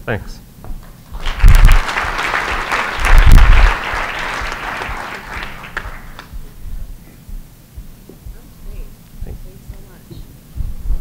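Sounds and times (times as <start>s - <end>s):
audience applauding: 1.1s - 6.4s
heavy low thumps: 1.2s - 5.2s, 5.8s - 11.0s.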